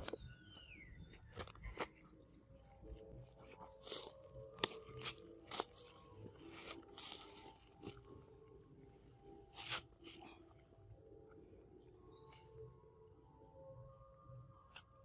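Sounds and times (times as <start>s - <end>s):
monkey crunching mango: 2.8s - 8.1s.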